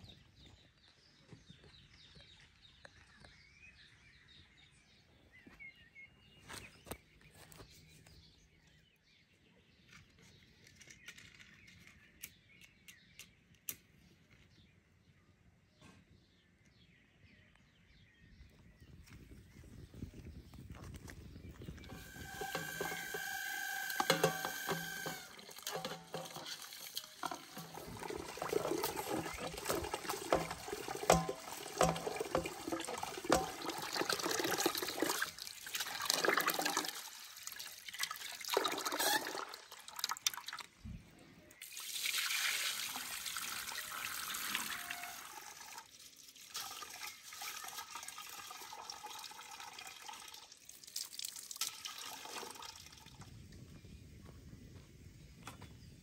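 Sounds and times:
water splashing in a metal pot: 0:21.8 - 0:40.8, 0:41.6 - 0:53.2
sharp clicks and knocks: 0:23.9 - 0:28.0, 0:28.8 - 0:33.8.

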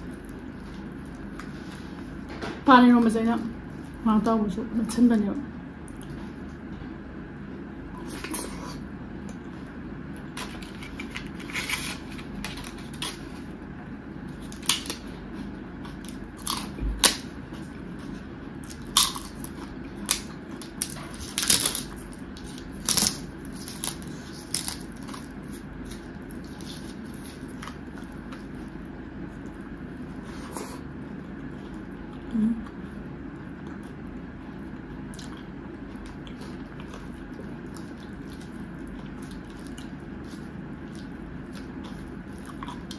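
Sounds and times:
low background hum: 0:00.0 - 0:42.9
crisp wafer crunched while chewing: 0:10.2 - 0:13.5, 0:14.3 - 0:15.1, 0:18.6 - 0:28.8.

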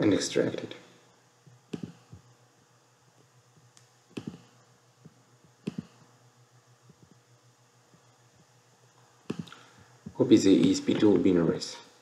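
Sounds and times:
faint steady hum: 0:00.0 - 0:12.0
computer mouse clicks: 0:01.7 - 0:02.1, 0:03.7 - 0:04.5, 0:05.6 - 0:06.0.

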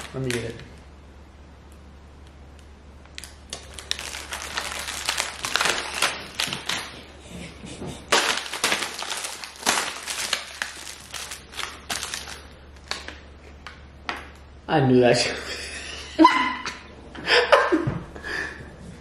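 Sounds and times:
plastic wrapping crackling: 0:00.0 - 0:00.9, 0:03.0 - 0:07.2, 0:08.0 - 0:14.4.

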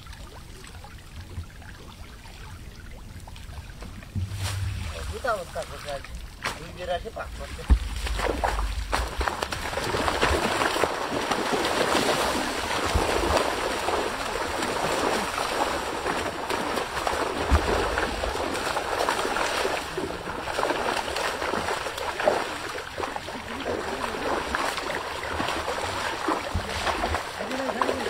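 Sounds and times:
fish thrashing and water splashing: 0:00.0 - 0:28.0.

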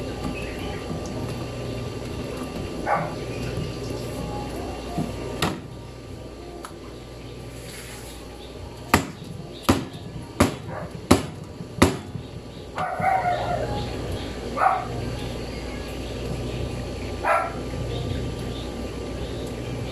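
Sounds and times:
sharp knocks: 0:08.9 - 0:12.3.

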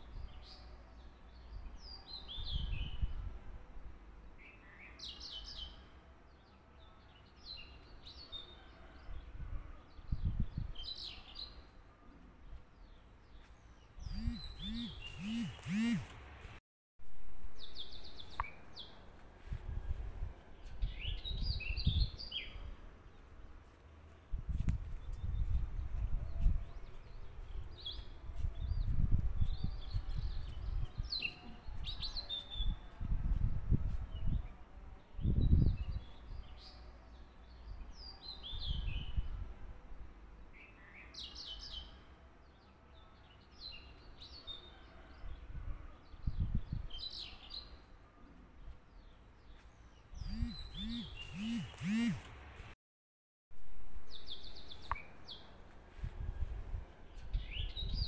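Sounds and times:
small birds chirping: 0:12.4 - 0:16.5, 0:48.6 - 0:52.3, 0:54.1 - 0:56.0.

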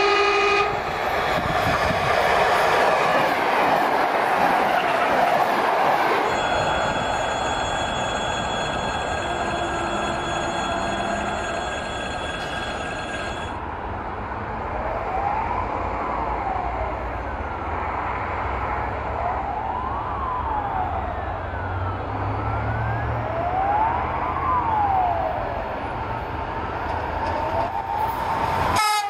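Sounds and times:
electric locomotive rumbling: 0:00.0 - 0:13.9, 0:24.4 - 0:29.0
steady high tones: 0:06.0 - 0:13.6
siren wailing up and down: 0:19.1 - 0:25.8.

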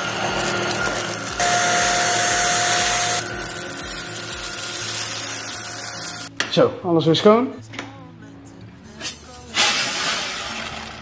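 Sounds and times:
vacuum whine: 0:00.0 - 0:03.7
stick vacuum running: 0:00.0 - 0:06.3.

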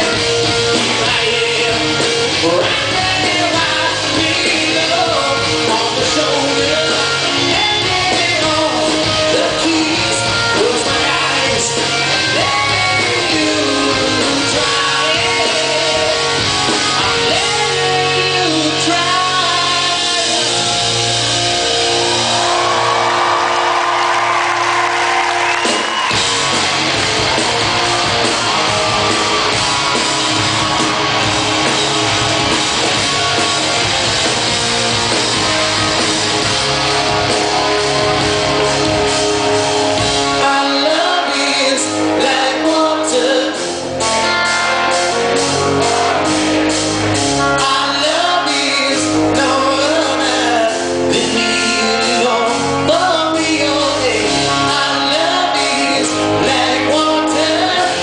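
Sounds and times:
male vocalist singing: 0:00.0 - 0:21.0, 0:40.3 - 0:44.4, 0:47.4 - 0:58.0
bass guitar: 0:00.0 - 0:58.0
electric guitar: 0:00.0 - 0:58.0.

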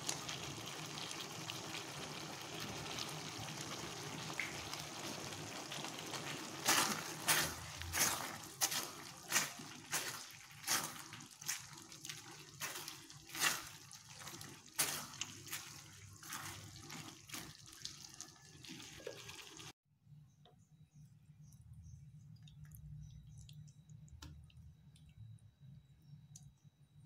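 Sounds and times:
spatula stirring saucy stir-fry: 0:05.0 - 0:18.8.

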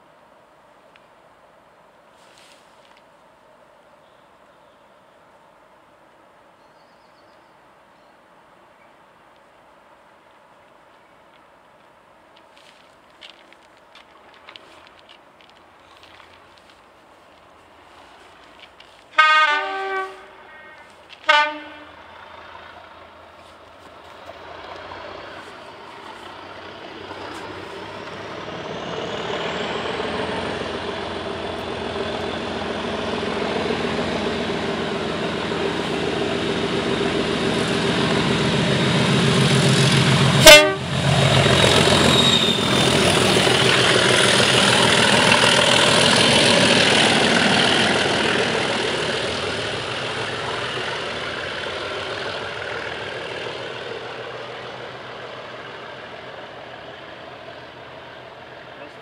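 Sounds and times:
diesel locomotives working hard: 0:17.3 - 0:59.0
short train horn toot: 0:19.2 - 0:22.0, 0:40.3 - 0:41.0.

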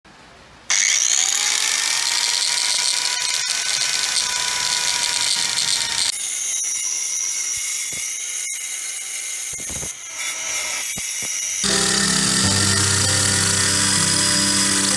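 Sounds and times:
circular saw motor whine: 0:11.6 - 0:14.9.

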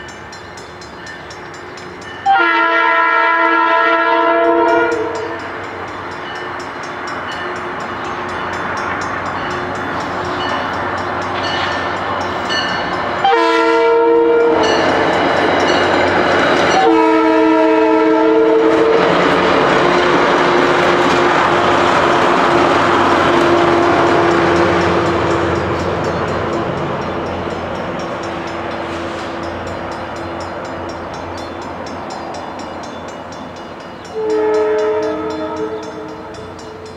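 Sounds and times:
crossing bells dinging: 0:00.0 - 0:36.9
train rumbling over rails: 0:00.0 - 0:36.9
train chord horn blasts: 0:02.2 - 0:05.7, 0:13.2 - 0:15.1, 0:16.7 - 0:25.8, 0:34.1 - 0:36.9.

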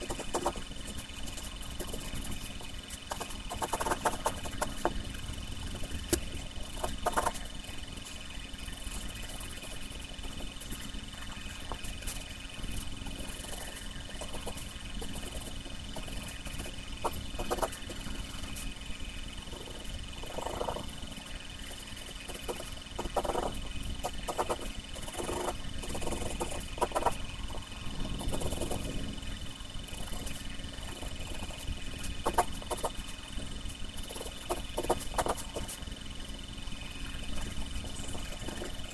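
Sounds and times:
pencil scratching on paper: 0:00.0 - 0:36.3, 0:36.9 - 0:38.9
eraser rubbing on paper: 0:06.3 - 0:18.8, 0:21.7 - 0:29.0, 0:34.0 - 0:35.9.

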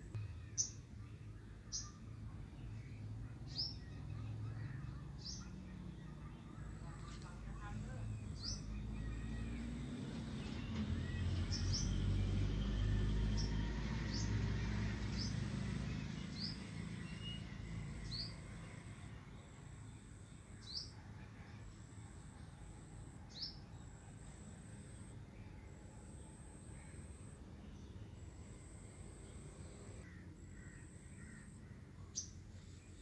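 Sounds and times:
small bird chirping: 0:03.5 - 0:09.8.

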